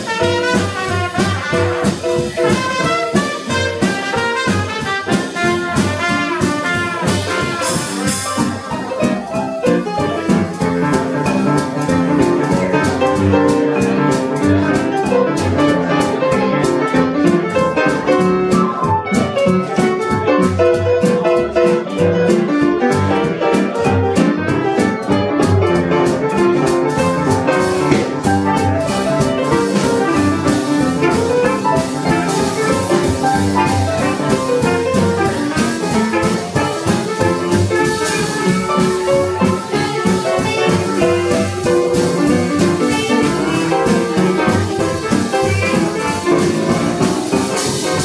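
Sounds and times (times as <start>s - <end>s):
cymbals: 0.0s - 13.3s, 26.9s - 48.0s
clarinet: 0.0s - 13.6s, 14.8s - 48.0s
trumpet: 0.0s - 13.6s, 26.0s - 48.0s
drum kit beat: 0.0s - 48.0s
jazz band playing swing: 0.0s - 48.0s
upright bass: 0.0s - 48.0s.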